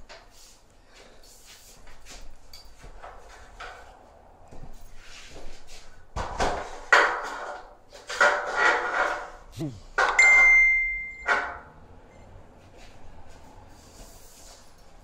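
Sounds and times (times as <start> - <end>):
steady ringing tone: 10.2 - 11.4.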